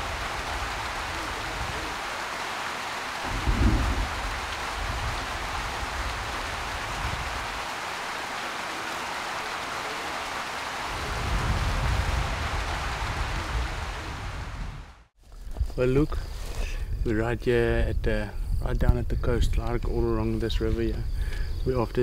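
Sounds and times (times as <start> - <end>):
steady rain: 0.0 - 15.1
low rumbles: 3.2 - 7.5.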